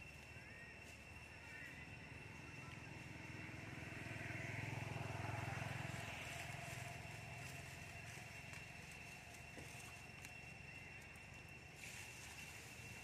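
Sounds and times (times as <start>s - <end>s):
distant vehicle engine hum: 0.0s - 13.0s
thin steady high tone: 0.0s - 13.0s.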